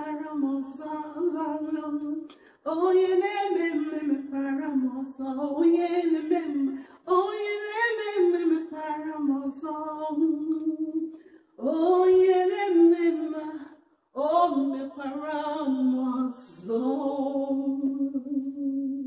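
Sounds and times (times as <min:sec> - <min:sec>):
woman singing unaccompanied: 0:00.0 - 0:19.0.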